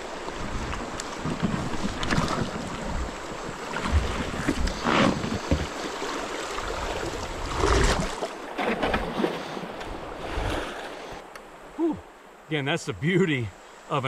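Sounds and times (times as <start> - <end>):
paddle splashing in water: 0.0 - 11.2
moving water: 0.0 - 14.0.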